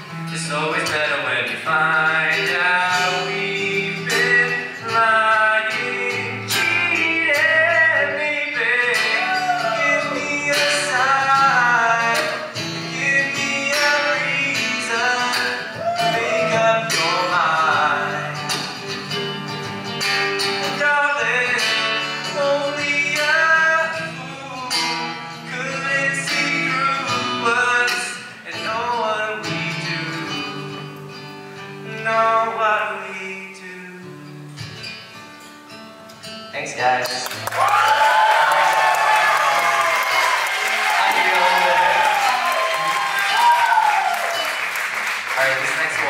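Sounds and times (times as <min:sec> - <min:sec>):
strummed acoustic guitar: 0:00.0 - 0:37.4
man singing into a microphone: 0:00.1 - 0:18.6, 0:20.6 - 0:31.0, 0:31.8 - 0:34.3.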